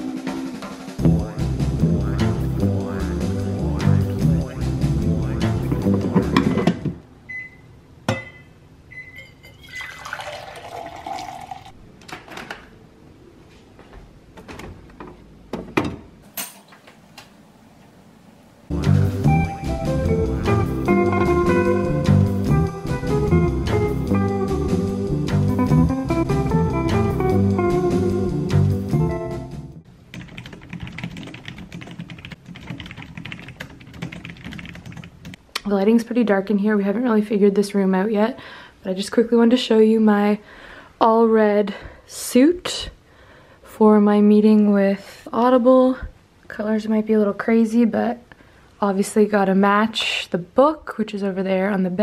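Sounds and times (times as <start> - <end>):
acoustic guitar music: 1.0 - 6.7, 18.7 - 29.6
short beeps: 7.3 - 9.6
coffee pouring into metal tumbler: 9.6 - 11.8
creamer pouring: 9.6 - 11.8
fingers typing on keyboard: 30.1 - 35.4.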